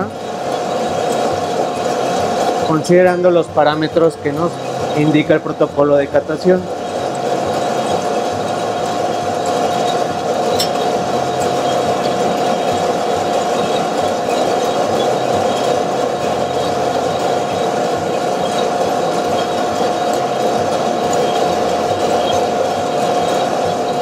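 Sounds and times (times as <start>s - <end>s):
coffee roaster running: 0.0s - 24.0s.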